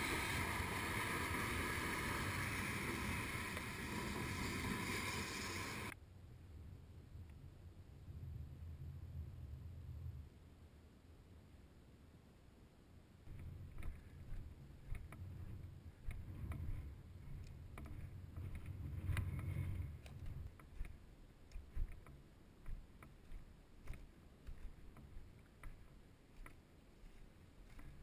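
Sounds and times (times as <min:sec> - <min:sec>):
footsteps in dry grass: 0:13.3 - 0:28.0.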